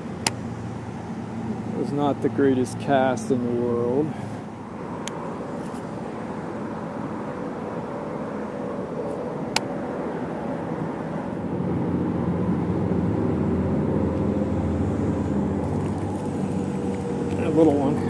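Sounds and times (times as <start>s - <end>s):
road traffic noise: 0.0s - 18.0s
vehicle engine hum: 0.0s - 18.0s
sharp click: 9.5s - 9.7s.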